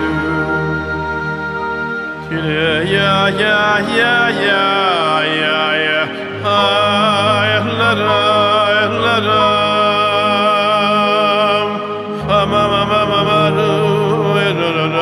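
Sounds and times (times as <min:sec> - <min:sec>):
man singing slow melody: 0:00.0 - 0:01.2, 0:02.2 - 0:15.0
instrumental accompaniment with bass: 0:00.0 - 0:15.0.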